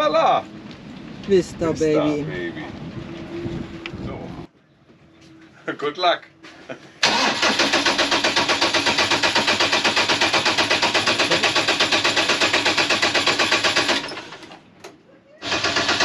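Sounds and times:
diesel engine chugging: 0:07.0 - 0:14.5, 0:15.4 - 0:16.0.

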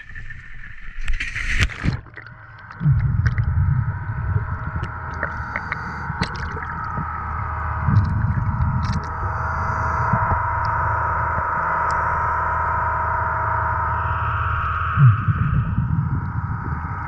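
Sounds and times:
water splashing and gurgling: 0:00.0 - 0:12.4
muffled underwater rumble: 0:00.0 - 0:17.0
underwater clicks: 0:00.1 - 0:12.2.

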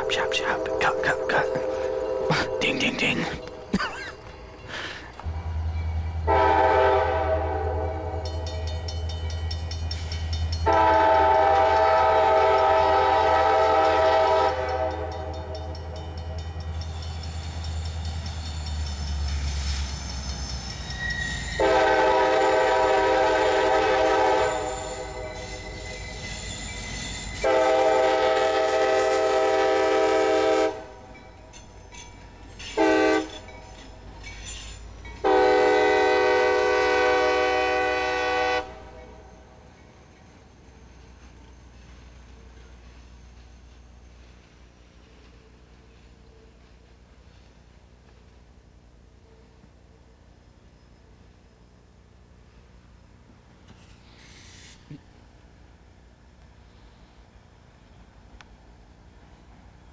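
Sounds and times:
locomotive air horn blasts: 0:01.6 - 0:02.3, 0:06.3 - 0:08.2, 0:10.6 - 0:15.3, 0:21.6 - 0:25.3, 0:27.4 - 0:31.0, 0:32.8 - 0:33.4, 0:35.2 - 0:38.9.

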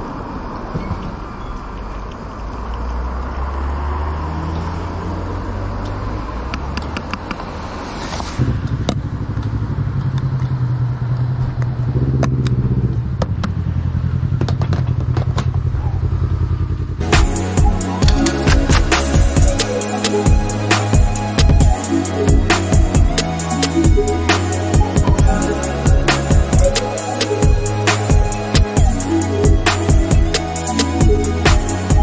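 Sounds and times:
fuel nozzle and cap clicks: 0:05.8 - 0:07.4
motorcycle engine idling: 0:12.7 - 0:19.7, 0:20.3 - 0:32.0.

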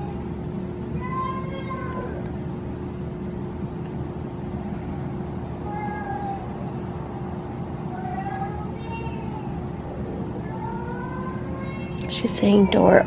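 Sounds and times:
baby monitor hiss and hum: 0:00.0 - 0:13.0
toddler calling through speaker: 0:01.0 - 0:02.2.

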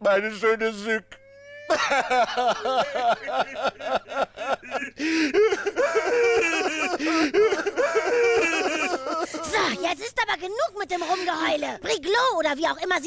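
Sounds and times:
woman sobbing and wailing: 0:01.2 - 0:10.1.

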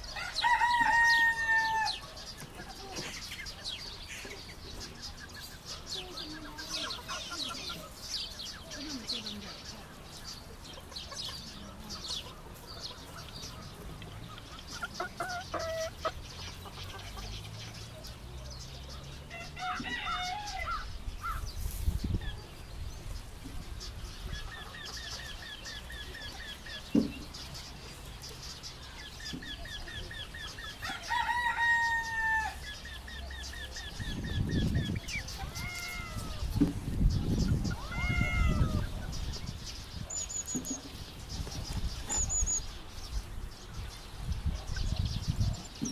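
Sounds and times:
chickens clucking: 0:00.0 - 0:45.9
rooster crowing: 0:00.1 - 0:02.0, 0:19.3 - 0:20.9, 0:30.8 - 0:32.6.

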